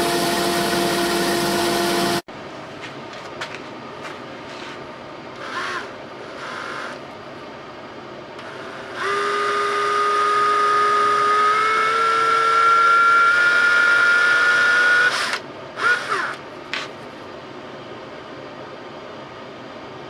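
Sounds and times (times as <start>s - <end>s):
cordless drill whining: 5.4s - 7.0s, 8.4s - 16.4s.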